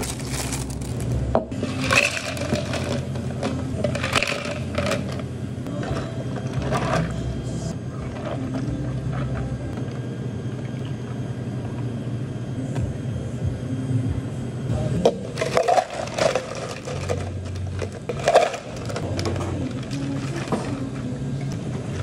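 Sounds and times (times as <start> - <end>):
ice cubes clattering in cups: 0.0 - 5.2, 15.3 - 20.9.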